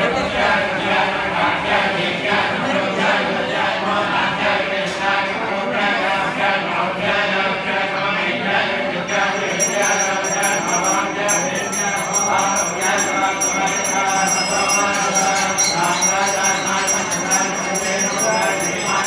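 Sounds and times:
group chanting in unison: 0.0s - 19.0s
small bells ringing rapidly: 9.1s - 19.0s.

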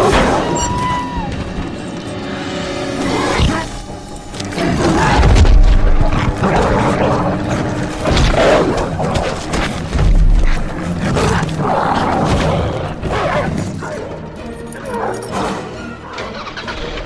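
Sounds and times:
orchestral score: 0.0s - 17.0s
creature roars and snarls: 4.5s - 9.8s, 10.9s - 13.6s.

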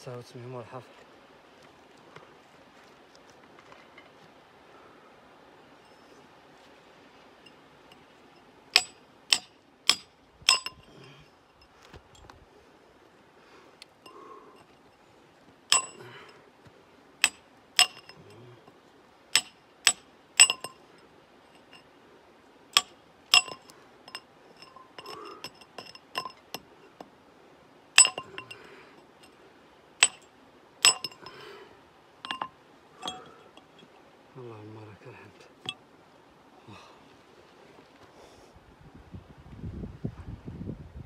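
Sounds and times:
hammer striking steel chisel: 8.8s - 10.9s, 15.7s - 16.0s, 17.2s - 18.3s, 19.3s - 20.8s, 22.8s - 26.6s, 28.0s - 28.6s, 30.0s - 30.2s, 30.8s - 31.4s, 32.2s - 33.4s.

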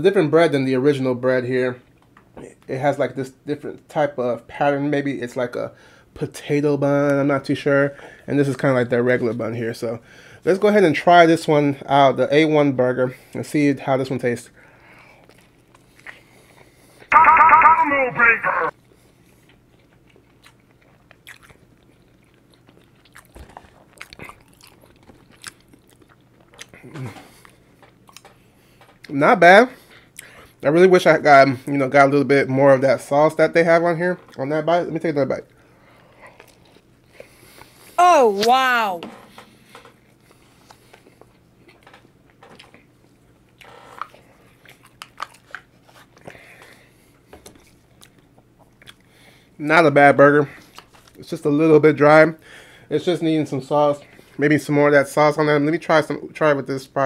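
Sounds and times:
man chewing wetly: 15.1s - 17.1s, 18.8s - 29.1s, 35.5s - 37.9s, 39.6s - 49.5s
wet chewing mouth clicks: 19.8s - 26.8s.

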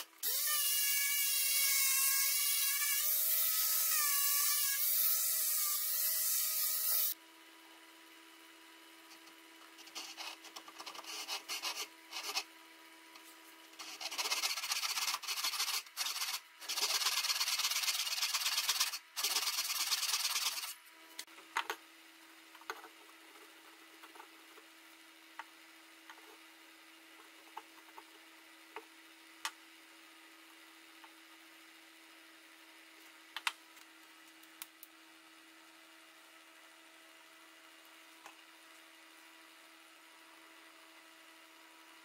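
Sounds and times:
hand saw cutting wood: 13.8s - 20.8s.

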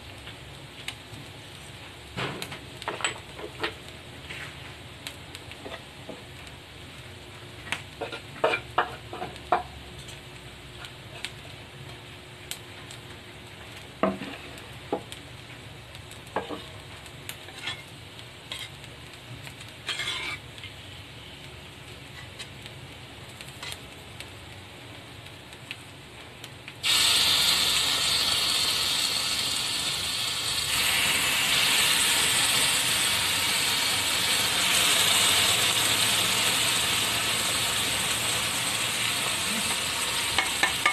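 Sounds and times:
sauce sizzling on hot plate: 0.0s - 40.9s
utensils and cookware clinking: 19.9s - 20.4s, 40.3s - 40.9s.

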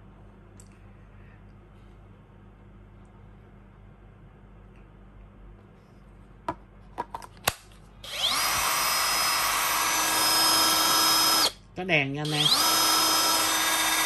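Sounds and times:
cut-off tool motor whining: 8.0s - 11.6s, 12.3s - 14.0s.

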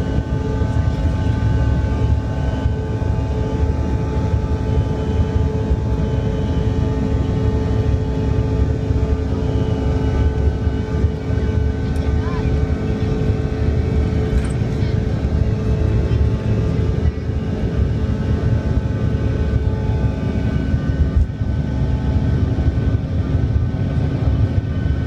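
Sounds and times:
jet engines at takeoff from cabin: 0.0s - 25.0s.

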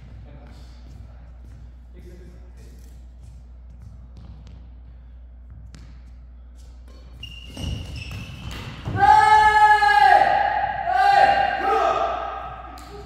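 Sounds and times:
shoes squealing on sports floor: 6.6s - 9.4s.

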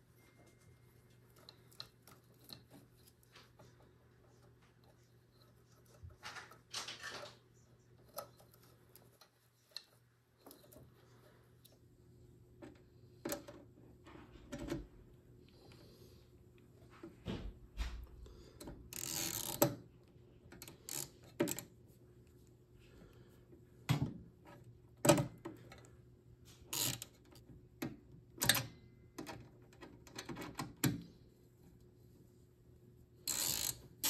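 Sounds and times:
ratchet clicking and scraping on metal: 18.6s - 19.8s, 20.5s - 21.7s, 26.5s - 27.4s, 33.2s - 34.0s.

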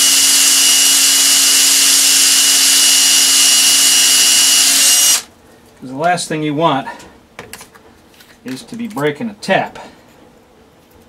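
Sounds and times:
cordless drill drilling into metal: 0.0s - 5.3s.

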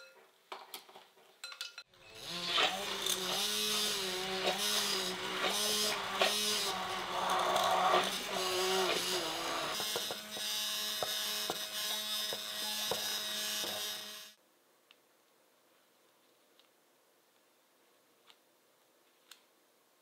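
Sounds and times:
stick blender motor hum: 2.0s - 14.4s.

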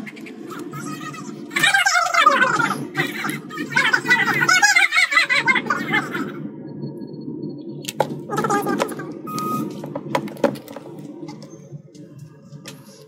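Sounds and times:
low background rumble: 0.0s - 13.0s
short beep: 9.3s - 9.7s.

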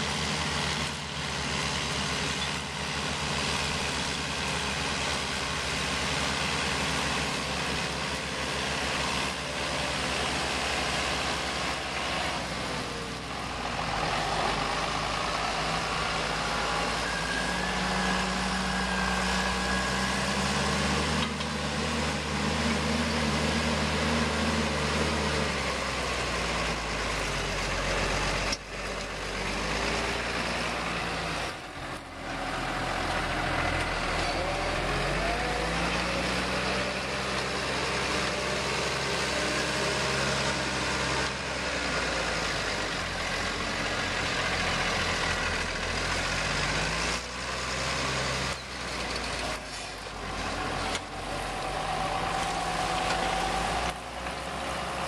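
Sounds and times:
tractor diesel engines: 0.0s - 55.0s.

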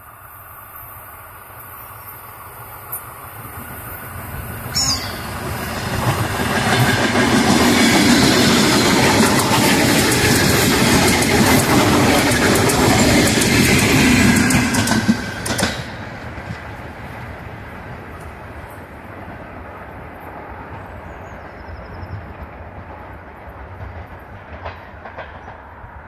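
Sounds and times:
electric train passing: 0.0s - 26.0s
wheels clicking over rail joints: 4.2s - 20.9s, 22.1s - 26.0s.

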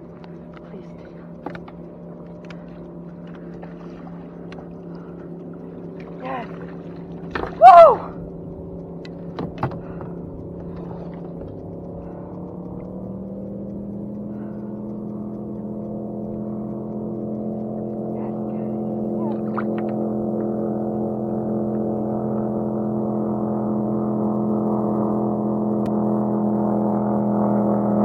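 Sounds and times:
sharp clicks: 0.0s - 22.6s
low motor hum: 0.0s - 28.0s.

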